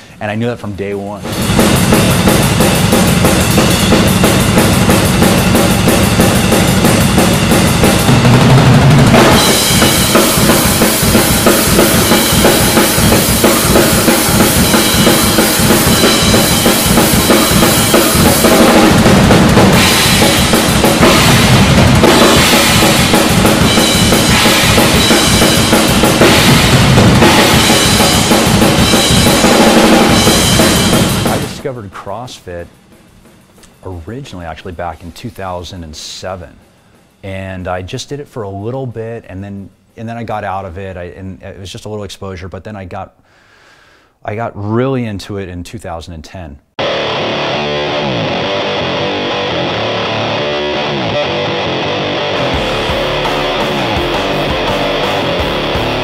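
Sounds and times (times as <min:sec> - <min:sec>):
double bass drums: 0:01.1 - 0:35.6, 0:48.5 - 0:56.0
crashing cymbals: 0:01.2 - 0:08.4, 0:09.0 - 0:34.5.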